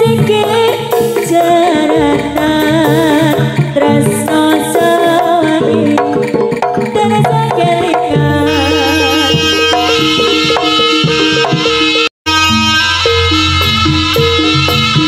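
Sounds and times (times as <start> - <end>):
hand drums rhythm: 0.0 - 15.0
struck metallophone notes: 8.1 - 15.0
wavering melodic line: 8.4 - 15.0.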